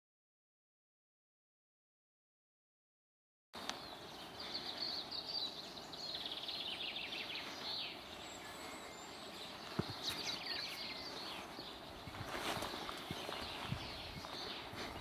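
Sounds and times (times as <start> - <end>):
small birds chirping: 3.6 - 15.0.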